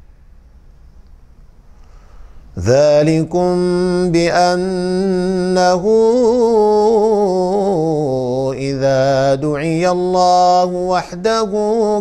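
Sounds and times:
man reciting melodically: 0:02.6 - 0:12.0.

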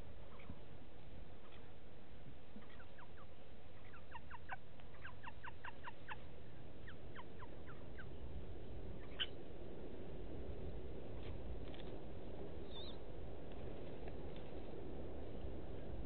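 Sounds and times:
low background noise: 0:00.0 - 0:16.0
small bird chirping: 0:00.2 - 0:00.6, 0:02.5 - 0:08.3, 0:08.9 - 0:09.4, 0:12.6 - 0:13.0.

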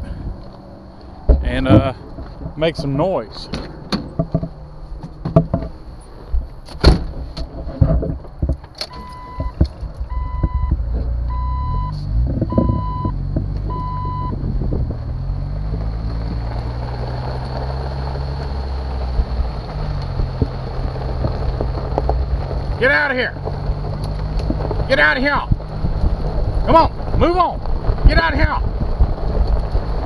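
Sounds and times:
car engine running: 0:00.0 - 0:30.0
tyres on gravel: 0:00.0 - 0:30.0
knocks: 0:01.3 - 0:02.8, 0:03.5 - 0:05.8, 0:06.8 - 0:11.1
car door slamming: 0:06.6 - 0:07.5, 0:08.7 - 0:11.2
warning chime beeping: 0:08.9 - 0:10.7.

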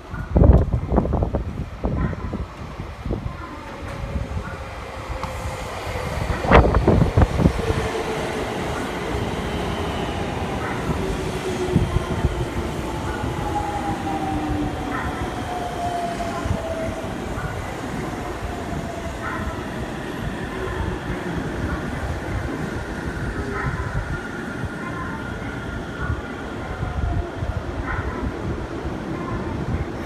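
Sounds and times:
train running noise with whine: 0:00.0 - 0:30.0.

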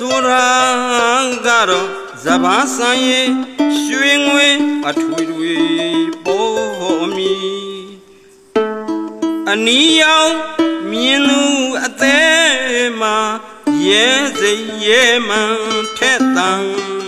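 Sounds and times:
plucked harp melody: 0:00.0 - 0:07.8, 0:08.6 - 0:09.7, 0:13.7 - 0:17.0
man singing: 0:00.0 - 0:08.2, 0:09.4 - 0:17.0.

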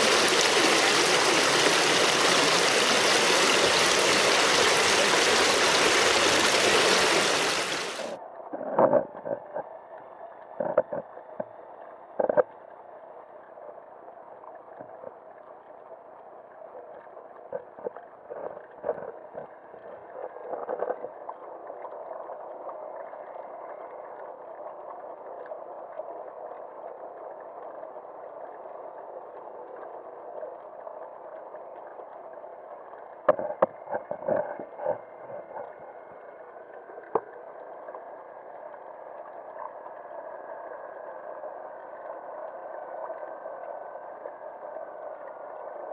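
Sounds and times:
muffled underwater hiss: 0:00.0 - 0:08.2
underwater clicks and knocks: 0:08.5 - 0:09.7, 0:10.4 - 0:11.6, 0:12.2 - 0:12.6, 0:17.4 - 0:21.4, 0:33.0 - 0:35.8, 0:36.6 - 0:38.1.

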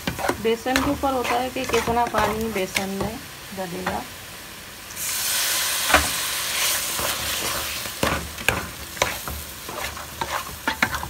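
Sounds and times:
spatula scraping a pan: 0:00.0 - 0:03.1, 0:05.9 - 0:11.0
food sizzling in a pan: 0:00.0 - 0:11.0.

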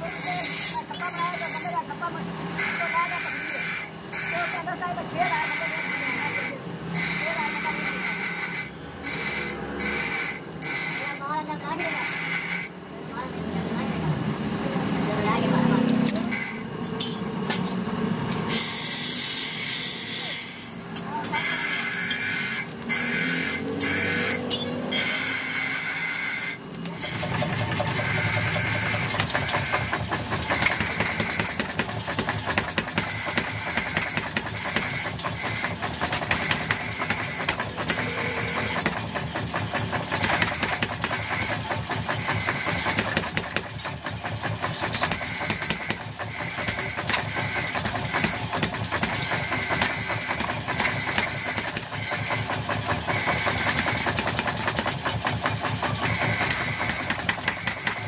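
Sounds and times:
power hammer striking steel: 0:15.2 - 0:58.0.

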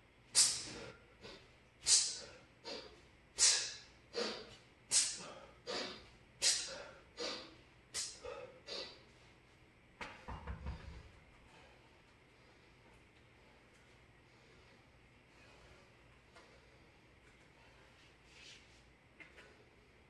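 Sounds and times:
man exhaling forcefully: 0:00.4 - 0:09.0
quiet breaths: 0:00.5 - 0:09.5, 0:10.7 - 0:20.0.

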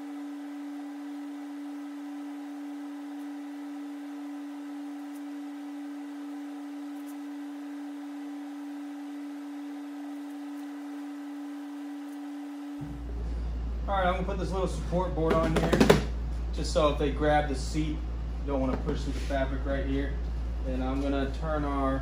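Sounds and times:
steady pure tone: 0:00.0 - 0:15.2.

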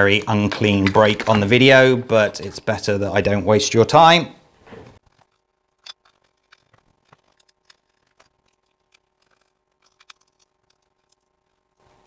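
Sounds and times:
faint steady hum: 0:00.0 - 0:12.0
small screws and tools clicking: 0:05.0 - 0:12.0.

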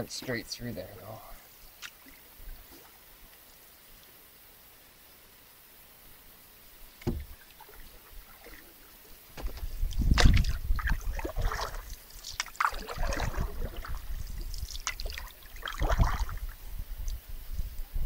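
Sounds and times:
paddle splashing in water: 0:07.0 - 0:16.6.

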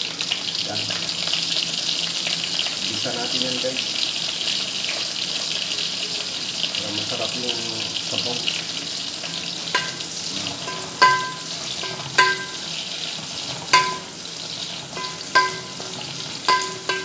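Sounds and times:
food sizzling in pan: 0:00.0 - 0:17.0
metal spoon clinking against pan: 0:09.7 - 0:12.8, 0:13.7 - 0:14.2, 0:14.9 - 0:17.0.

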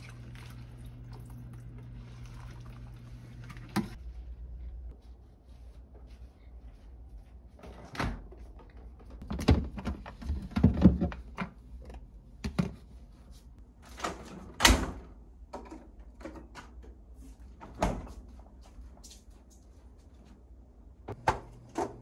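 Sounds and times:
refrigerator doors opening and shutting: 0:13.8 - 0:16.8, 0:17.6 - 0:18.1.

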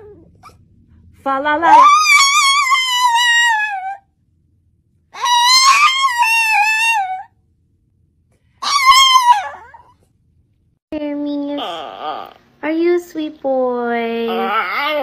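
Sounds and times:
dog howling: 0:01.6 - 0:04.0, 0:05.2 - 0:07.3, 0:08.6 - 0:10.0, 0:14.3 - 0:15.0.

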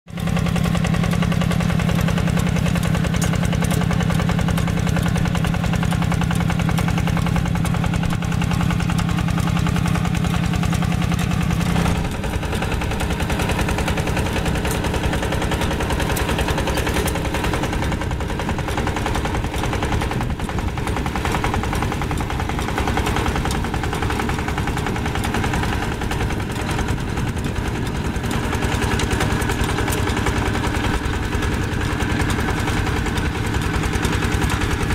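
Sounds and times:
tiller working dry soil: 0:00.1 - 0:34.9
tractor diesel engine chugging: 0:00.1 - 0:34.9.

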